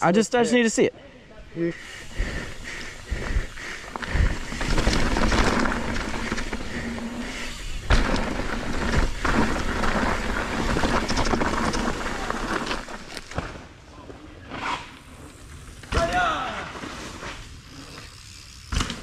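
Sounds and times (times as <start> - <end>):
bike tyres rolling over dirt: 1.8 - 19.0
bike knocking and rattling: 2.2 - 13.6, 17.6 - 19.0.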